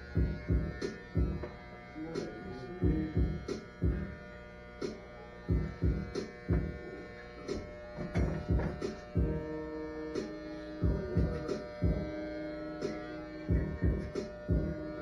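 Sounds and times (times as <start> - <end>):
music with heavy drum beat: 0.0 - 1.4, 2.8 - 4.1, 4.8 - 6.8, 7.5 - 9.4, 10.2 - 12.2, 12.8 - 14.8
electric hair clippers buzzing: 0.0 - 15.0.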